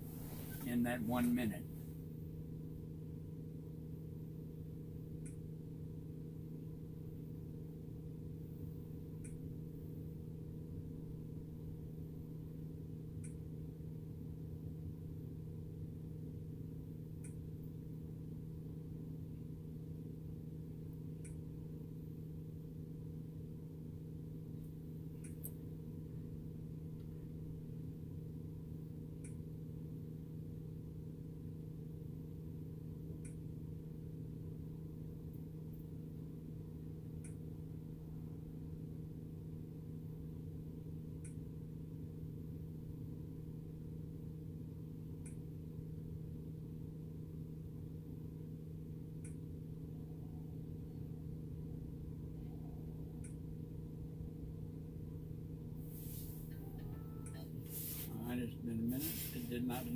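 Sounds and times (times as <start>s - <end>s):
low hum in truck cab: 44.6s - 57.7s.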